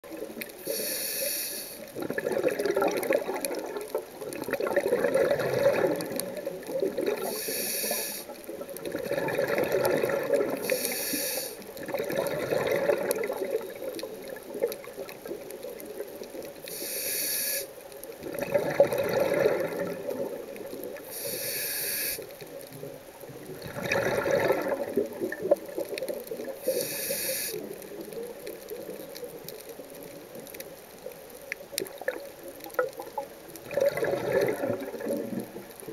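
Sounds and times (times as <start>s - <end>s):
exhaled bubbles underwater: 0.0s - 0.9s, 1.8s - 16.8s, 17.8s - 21.6s, 22.2s - 35.9s
regulator inhale hiss: 0.6s - 1.9s, 7.2s - 8.4s, 10.6s - 11.7s, 16.6s - 17.8s, 21.0s - 22.4s, 26.6s - 27.8s.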